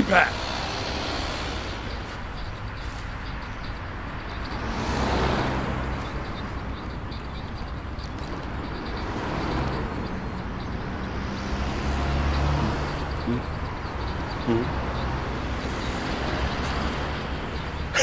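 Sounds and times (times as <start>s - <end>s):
road traffic rushing: 0.0s - 18.0s.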